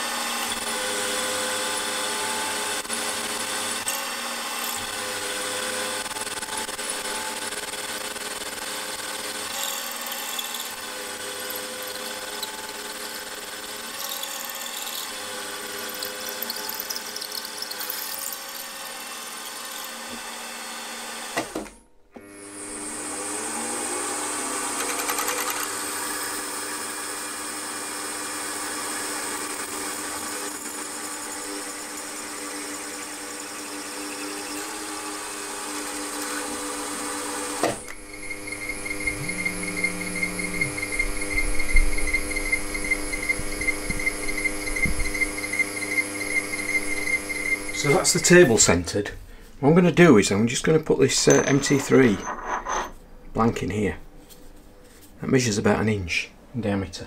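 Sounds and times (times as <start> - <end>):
milling machine whine: 0.0 - 48.9
drill bit cutting cast iron: 0.0 - 49.0, 51.0 - 52.9.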